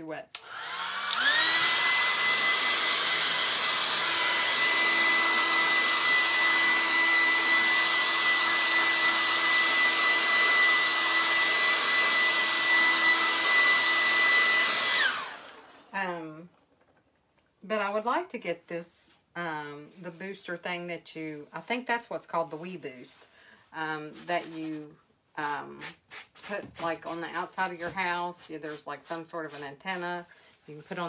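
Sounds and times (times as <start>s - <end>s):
hair dryer blowing: 0.4s - 16.0s.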